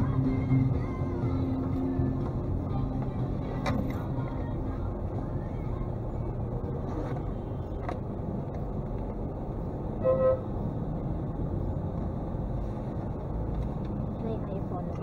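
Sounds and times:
traffic rumble: 0.0s - 15.0s
vehicle horn honk: 10.0s - 10.5s.

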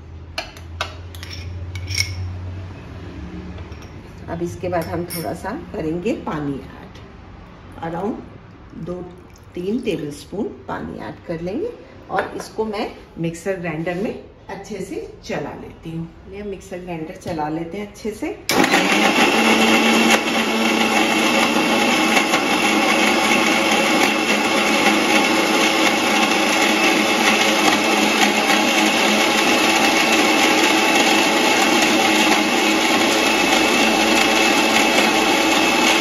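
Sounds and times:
mixer grinder motor whine: 18.5s - 36.0s.

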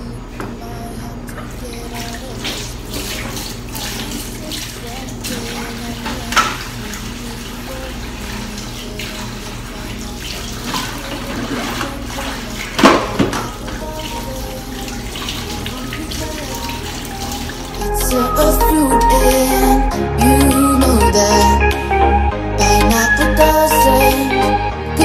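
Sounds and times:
tap running into sink: 10.2s - 13.9s
background music: 11.1s - 25.0s.

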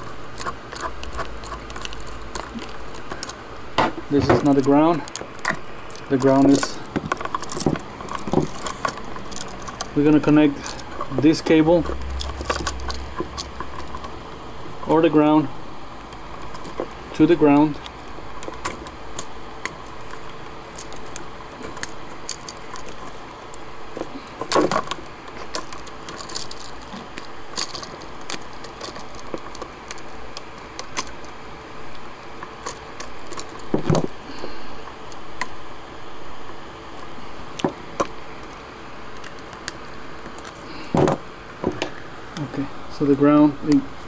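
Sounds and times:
small clicks and rattles: 0.0s - 14.9s, 16.0s - 35.6s
faint steady hum: 0.0s - 44.0s.

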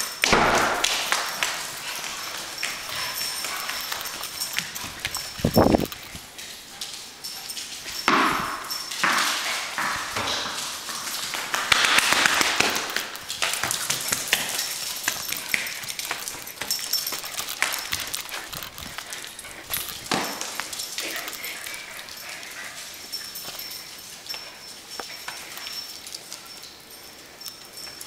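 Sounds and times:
dogs scuffling: 0.0s - 28.0s
dog claws clicking on hardwood: 11.1s - 22.2s.

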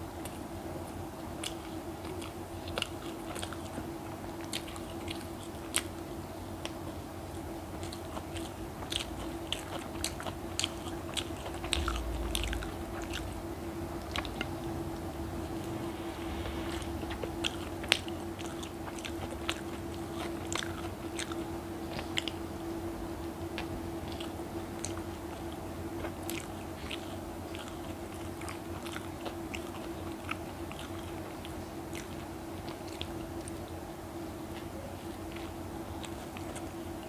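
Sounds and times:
steady hum: 6.0s - 34.5s.

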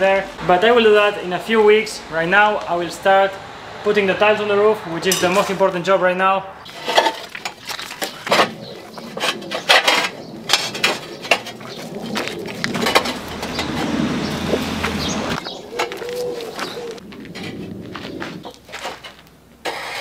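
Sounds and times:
clay roof tiles clattering: 6.6s - 20.0s.

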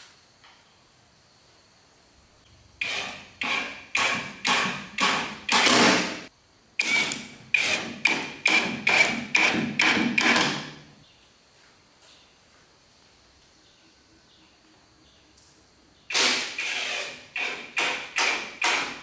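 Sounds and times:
impact driver bursts: 2.8s - 10.8s, 16.1s - 19.0s.

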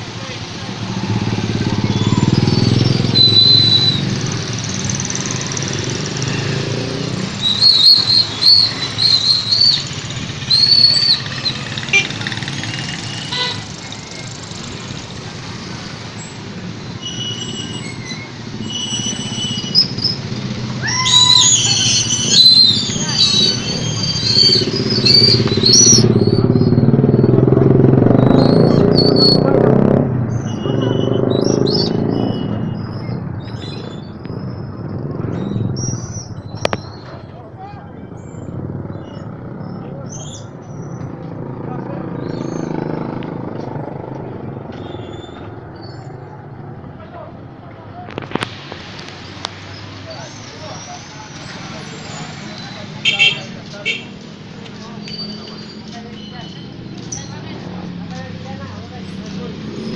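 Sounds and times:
motorcycle engines running: 0.0s - 17.0s, 17.8s - 59.9s
high squeaky chirps: 1.6s - 5.2s, 6.2s - 13.5s, 17.0s - 27.5s, 54.8s - 57.4s.

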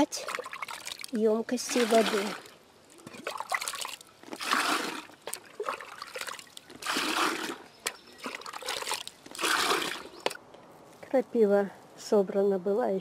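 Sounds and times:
water splashing into plastic bucket: 0.1s - 10.4s.

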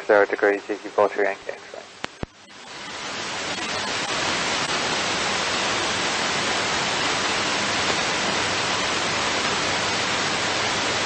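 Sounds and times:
radio static hiss: 0.0s - 11.0s.

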